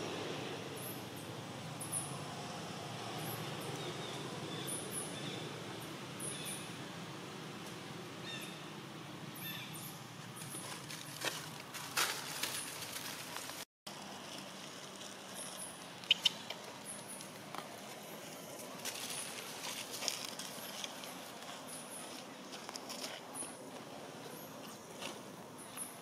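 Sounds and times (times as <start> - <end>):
forest ambience: 0.0 - 26.0
dry leaves rustling and crackling: 10.3 - 16.0, 16.6 - 23.2.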